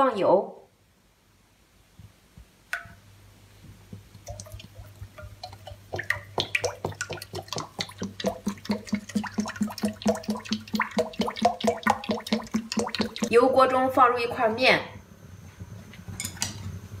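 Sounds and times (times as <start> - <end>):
oil pouring into a wok: 4.2 - 13.3.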